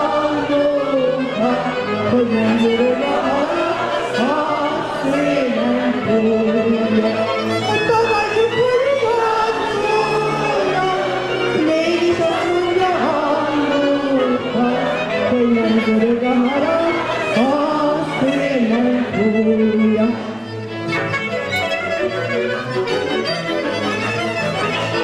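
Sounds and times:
woman singing into a microphone: 0:00.0 - 0:07.1, 0:07.9 - 0:20.3
violins cimbalom and double bass: 0:00.0 - 0:25.0.

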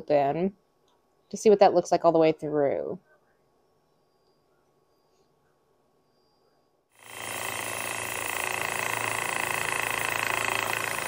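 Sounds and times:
motor humming: 0:07.0 - 0:11.0
saw grinding through stone: 0:07.0 - 0:11.0.

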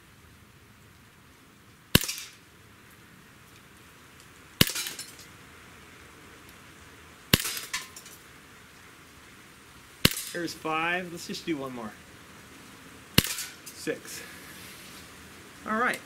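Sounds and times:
airsoft pistol shots: 0:01.9 - 0:02.4, 0:04.6 - 0:05.0, 0:07.3 - 0:07.8, 0:10.0 - 0:10.4, 0:13.2 - 0:13.6.

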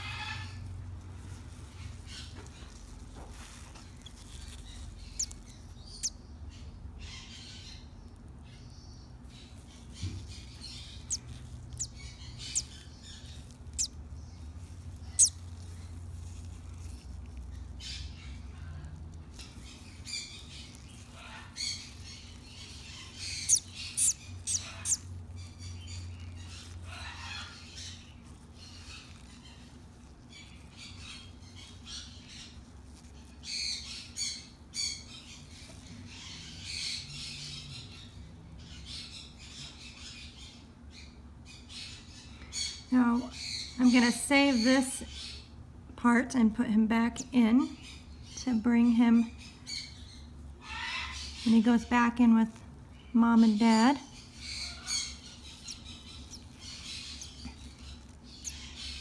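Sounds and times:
low steady hum: 0:00.0 - 0:59.0
chick squawking and cheeping: 0:04.0 - 0:06.2, 0:09.5 - 0:14.0, 0:15.1 - 0:15.6, 0:19.8 - 0:25.2.

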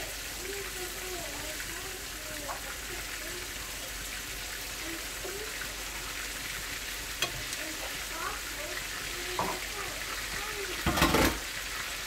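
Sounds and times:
chicken sizzling in hot oil: 0:00.0 - 0:12.0
tongs turning food: 0:02.4 - 0:10.8.

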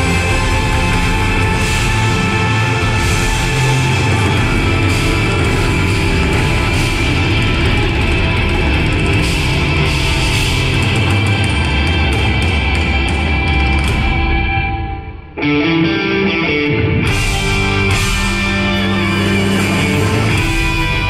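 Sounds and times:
drum kit: 0:00.0 - 0:15.3, 0:17.0 - 0:21.0
electric guitars: 0:00.0 - 0:21.0
live rock band playing: 0:00.0 - 0:21.0
violin: 0:00.0 - 0:21.0.

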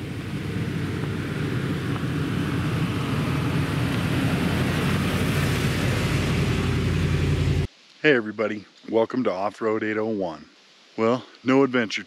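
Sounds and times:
pickup truck engine passing: 0:00.0 - 0:07.7.

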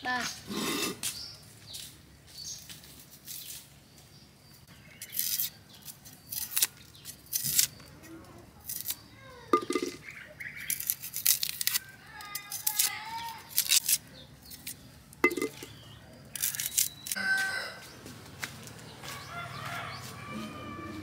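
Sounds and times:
birds calling: 0:00.0 - 0:12.5
knife peeling papery skin: 0:05.0 - 0:09.1, 0:10.6 - 0:14.9, 0:16.3 - 0:17.2.

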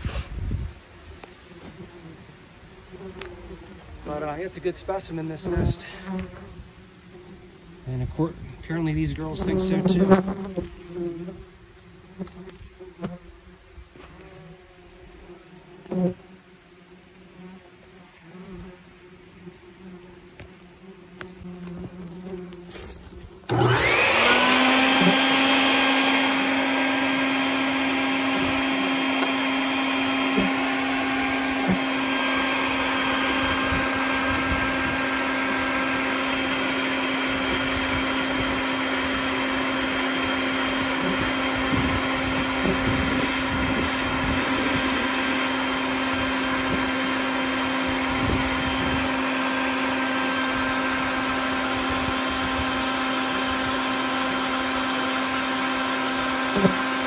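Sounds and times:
faint wasp buzzing: 0:00.0 - 0:54.8, 0:56.2 - 0:57.0
vacuum motor running: 0:08.6 - 0:10.5, 0:21.6 - 0:57.0.

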